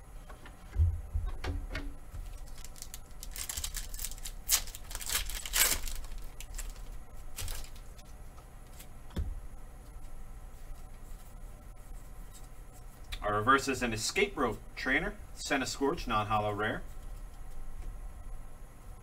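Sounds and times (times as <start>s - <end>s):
foil wrapper tearing and crinkling: 2.3s - 7.9s.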